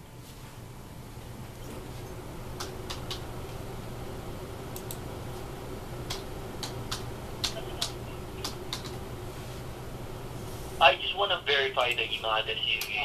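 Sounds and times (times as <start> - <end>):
steady low hum: 0.0 - 13.0
computer keyboard typing: 6.1 - 9.0.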